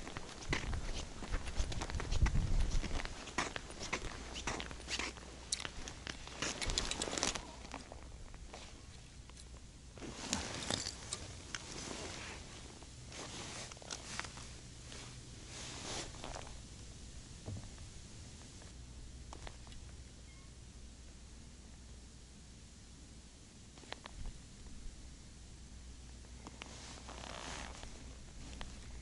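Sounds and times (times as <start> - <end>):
clothing rustling: 0.0 - 9.1, 10.0 - 16.6, 26.4 - 29.0.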